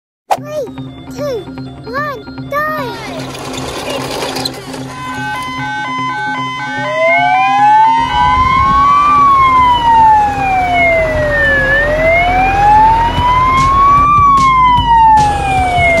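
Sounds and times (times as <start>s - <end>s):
fire truck siren wailing: 4.4s - 16.0s.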